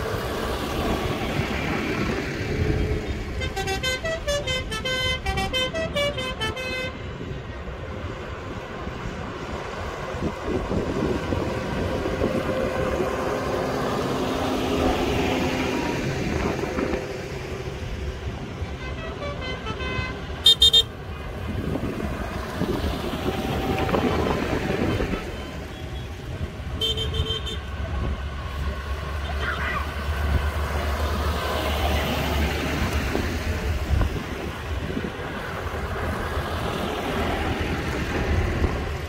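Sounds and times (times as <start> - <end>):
tractor engines driving past: 0.0 - 39.0
horn toots: 3.3 - 7.1, 18.7 - 21.0, 26.7 - 27.7.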